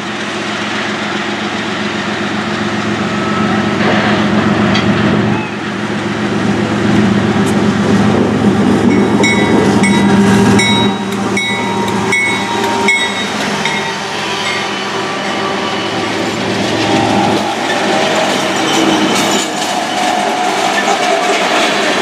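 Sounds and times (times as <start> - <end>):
locomotive engine rumble: 0.0 - 22.0
train wheels clacking: 7.4 - 22.0
wheel squeals: 8.9 - 22.0.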